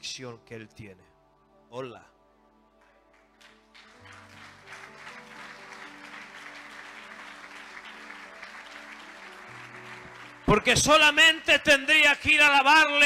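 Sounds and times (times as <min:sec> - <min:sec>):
congregation applauding: 0:02.8 - 0:13.0.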